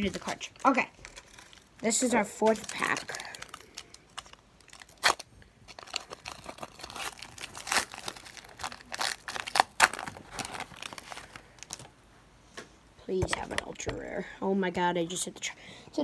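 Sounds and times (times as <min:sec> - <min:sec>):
foil pack tearing and crinkling: 0:00.0 - 0:11.9.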